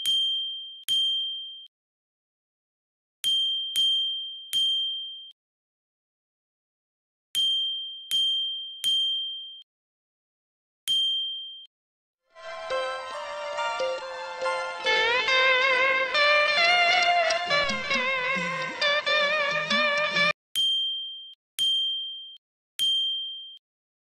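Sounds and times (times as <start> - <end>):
music: 12.3 - 20.4.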